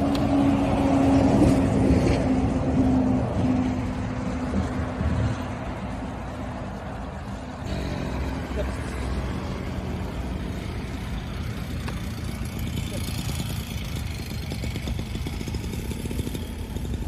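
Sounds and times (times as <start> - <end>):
vehicle engine idling: 6.6 - 17.0.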